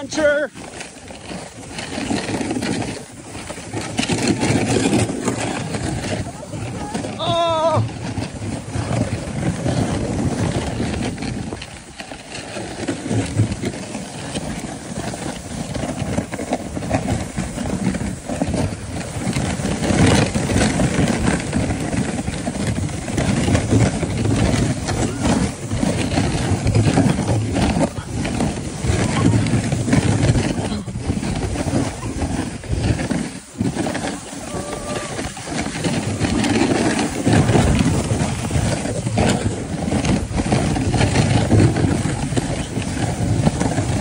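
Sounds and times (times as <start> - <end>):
sled scraping over packed snow: 0.0 - 44.0
person whooping: 6.8 - 7.9, 34.3 - 35.6.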